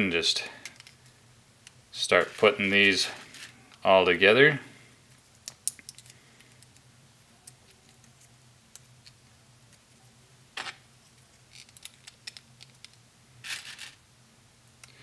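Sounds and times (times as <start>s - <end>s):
plastic pieces clicking and clattering: 5.4s - 6.8s, 11.5s - 14.0s.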